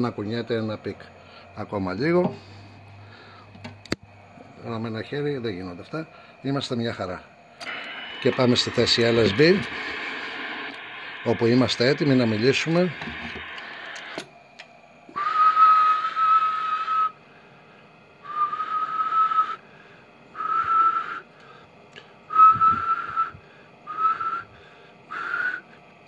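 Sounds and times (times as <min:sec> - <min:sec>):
person whistling short notes: 0:15.1 - 0:17.2, 0:18.3 - 0:19.6, 0:20.4 - 0:21.3, 0:22.3 - 0:24.5, 0:25.2 - 0:25.6.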